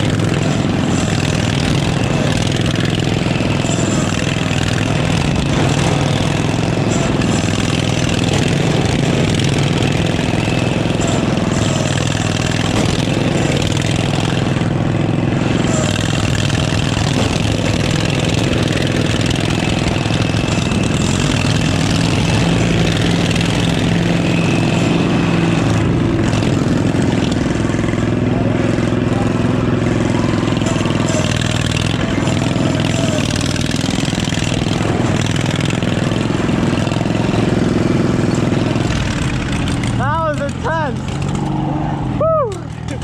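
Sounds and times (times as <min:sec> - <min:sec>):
lawn mower engine running: 0:00.0 - 0:43.0.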